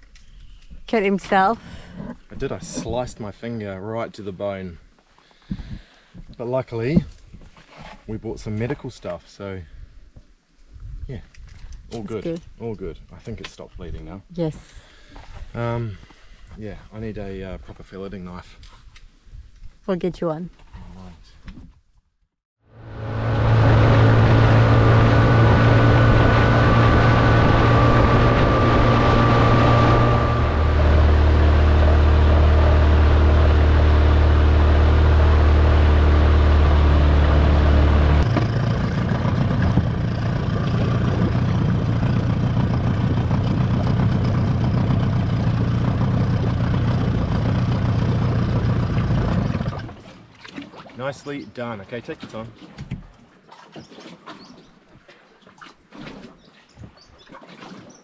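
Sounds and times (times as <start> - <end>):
outboard motor running: 22.8 - 50.9.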